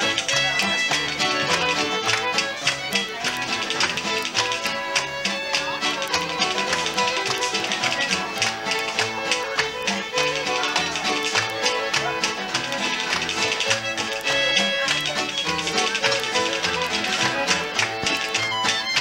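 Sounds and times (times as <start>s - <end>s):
acoustic guitars strumming: 0.0s - 19.0s
fiddle playing melody: 0.0s - 19.0s.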